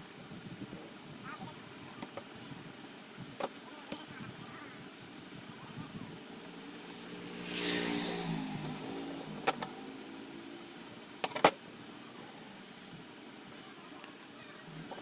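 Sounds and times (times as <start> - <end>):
motor vehicle passing by: 6.1 - 11.2.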